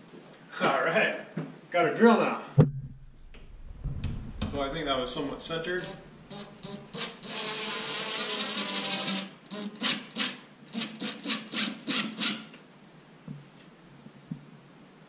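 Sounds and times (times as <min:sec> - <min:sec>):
cordless drill driving screw: 0:06.3 - 0:12.5.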